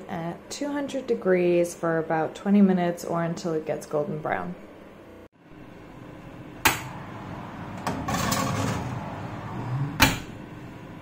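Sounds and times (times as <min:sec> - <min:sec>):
oven door shutting: 0:06.6 - 0:10.9
oven door opening with clunk: 0:07.7 - 0:10.4
metal baking tray clattering: 0:07.8 - 0:09.0.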